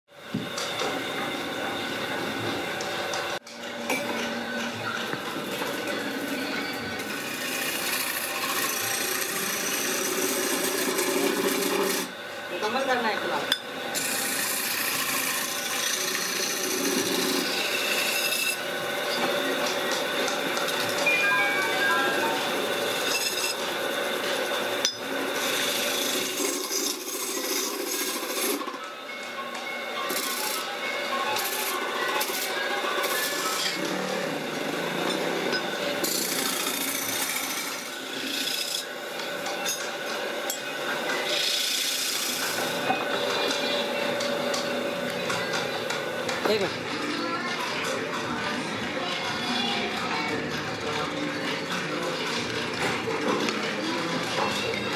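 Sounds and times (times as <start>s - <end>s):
lathe electric motor running: 0.2s - 48.8s
chisel scraping spinning wood: 4.9s - 21.1s, 22.0s - 28.8s, 30.1s - 46.7s.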